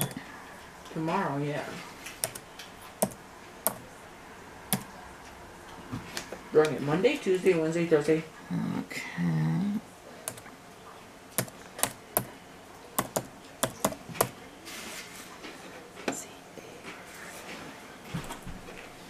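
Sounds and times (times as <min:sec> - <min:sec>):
computer keyboard typing: 0:02.2 - 0:02.4, 0:03.0 - 0:03.9, 0:11.4 - 0:12.3, 0:13.0 - 0:14.3.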